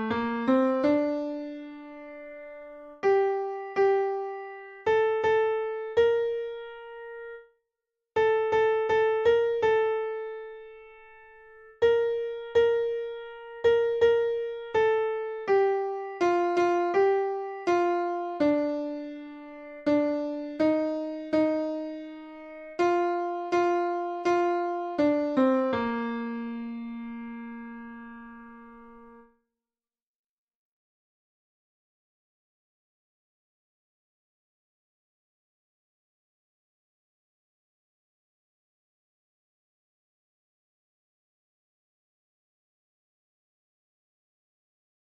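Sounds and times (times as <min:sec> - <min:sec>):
piano melody single notes: 0:00.0 - 0:07.4, 0:08.2 - 0:29.3.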